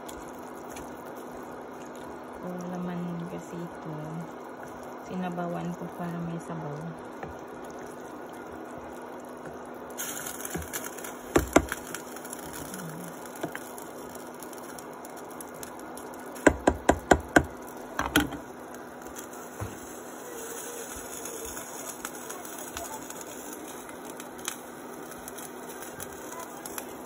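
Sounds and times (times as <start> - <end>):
ladle knocking on metal pot: 16.5 - 18.4.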